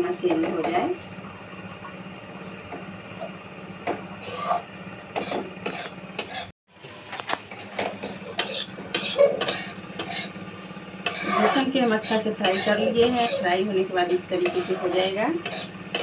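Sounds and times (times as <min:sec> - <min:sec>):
metal spatula scraping a pan: 0:04.2 - 0:06.5, 0:08.4 - 0:10.3, 0:11.0 - 0:16.0.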